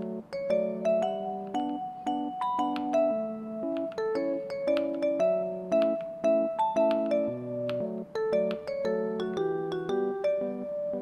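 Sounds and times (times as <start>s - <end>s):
soft melodic background music: 0.0s - 11.0s.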